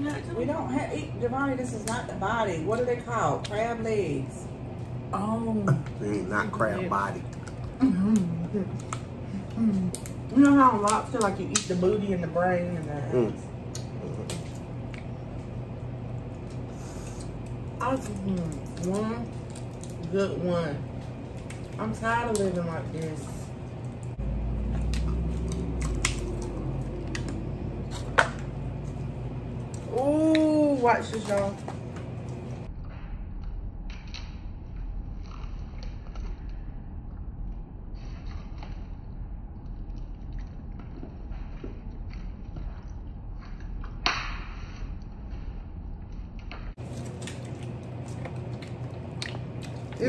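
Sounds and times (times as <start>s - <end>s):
steady low hum: 0.0s - 50.0s
crab shells cracking: 13.6s - 20.1s, 20.9s - 32.4s
wet shellfish squishing: 20.8s - 32.6s.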